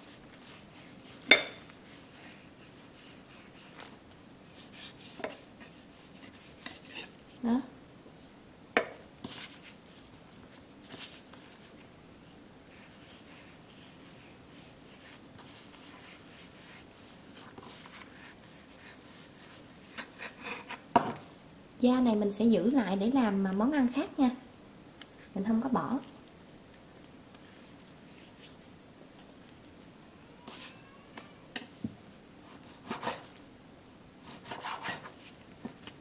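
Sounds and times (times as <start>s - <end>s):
knife blade scraping: 6.2s - 7.2s.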